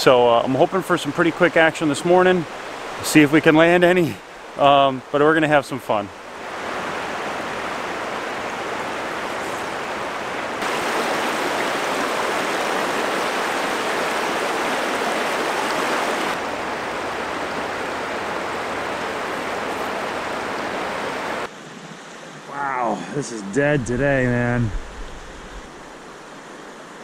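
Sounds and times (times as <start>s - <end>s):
river flowing over rocks: 6.2s - 22.9s.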